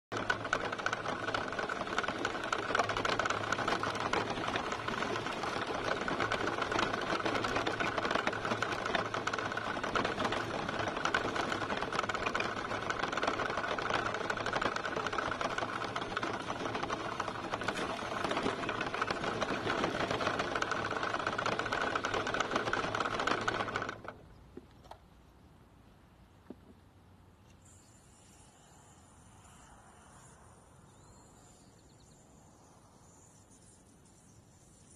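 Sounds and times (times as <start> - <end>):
rc truck motor whirring: 0.1 - 25.0, 27.4 - 34.9
wheels over gravel: 0.1 - 25.1.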